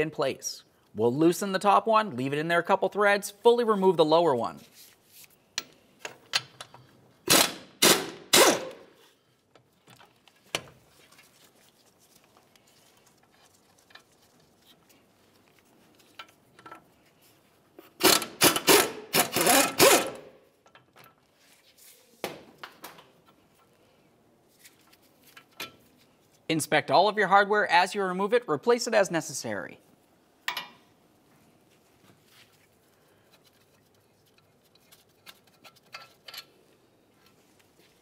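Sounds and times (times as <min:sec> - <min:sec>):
handling of metal parts: 0:33.3 - 0:37.6.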